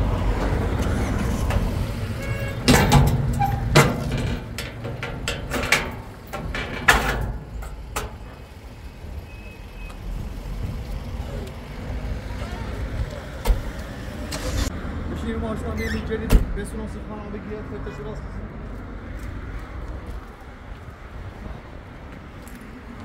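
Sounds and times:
motor vehicle rumble: 0.0 - 23.0
sharp knocks and clanks: 2.4 - 8.4.

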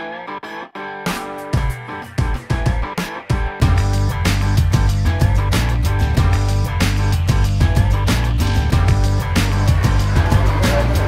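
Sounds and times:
background music with steady beat: 0.0 - 11.0
deep sustained bass line: 3.6 - 11.0.

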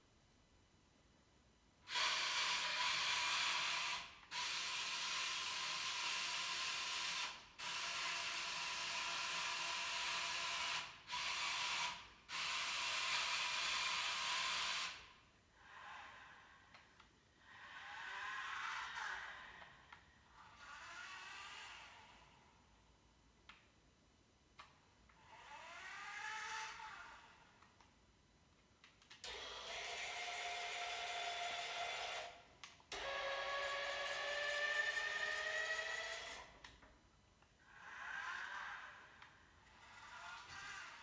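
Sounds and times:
wavering servo whines: 17.4 - 22.4, 25.2 - 27.5, 29.2 - 36.6, 37.7 - 41.0
robot motors whirring: 17.5 - 19.7, 25.2 - 27.3, 37.7 - 41.0.

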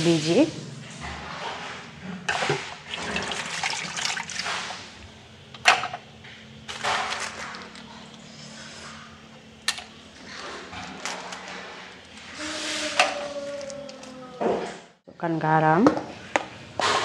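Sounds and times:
curry bubbling: 2.1 - 5.0.

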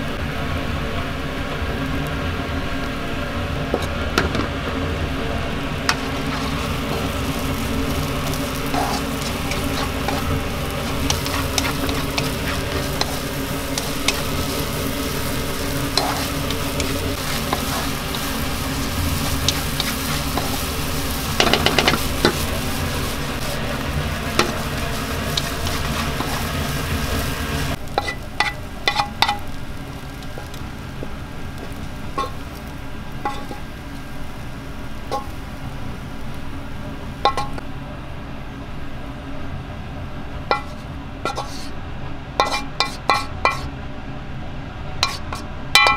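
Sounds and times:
noodles sizzling in a pan: 1.3 - 37.7, 40.4 - 41.8, 42.4 - 43.7, 45.0 - 45.9
spatula scraping a pan: 5.9 - 29.5, 31.6 - 32.6, 33.2 - 33.7, 40.5 - 41.8, 42.4 - 43.7, 45.0 - 45.5.

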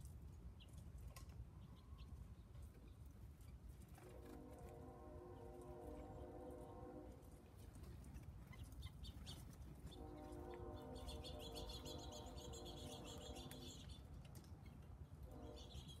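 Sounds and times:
small birds chirping: 7.8 - 16.0.

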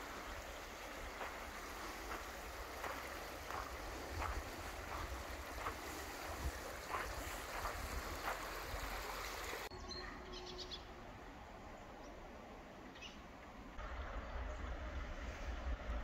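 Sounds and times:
stream water running: 0.0 - 9.7
bird chirps: 9.7 - 11.0.

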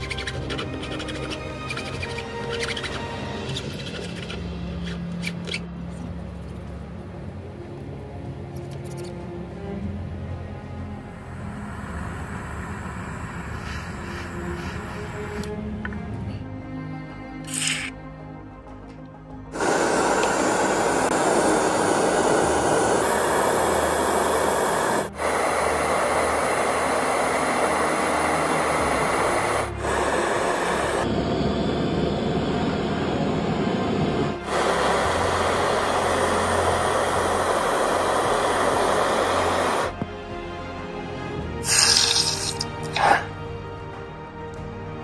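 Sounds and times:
gas torch flame hissing: 0.0 - 5.6, 11.0 - 15.6, 17.5 - 17.9, 19.6 - 40.1, 41.5 - 43.3.

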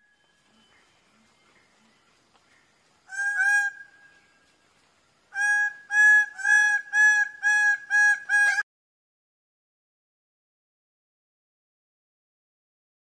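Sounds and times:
bird calling loudly: 3.1 - 4.2, 5.3 - 8.6.

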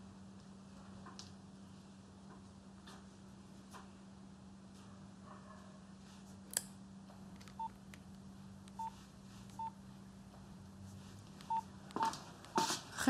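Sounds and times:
low steady hum: 0.0 - 13.0
phone key-press beeps: 8.7 - 8.9.

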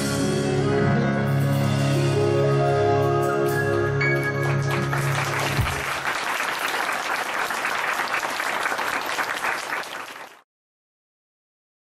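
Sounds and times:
audience applauding: 3.7 - 10.5.

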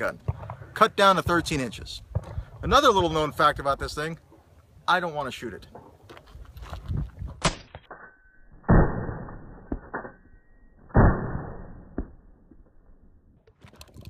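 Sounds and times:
shotgun blasts: 8.7 - 9.5, 10.9 - 12.3.

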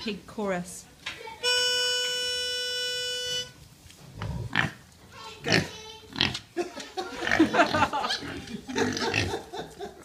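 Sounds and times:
pigs grunting: 4.1 - 4.8, 5.4 - 6.5, 7.1 - 9.5.

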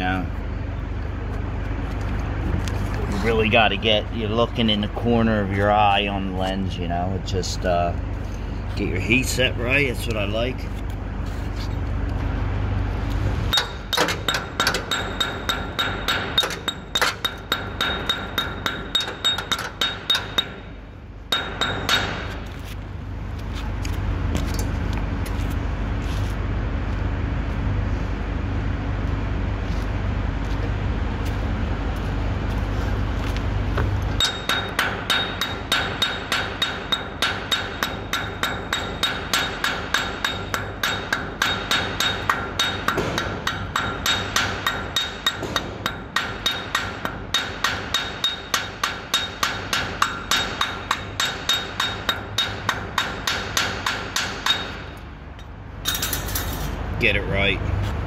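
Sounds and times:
chipping hammer striking steel: 13.5 - 20.7, 21.3 - 22.4, 34.2 - 55.0.

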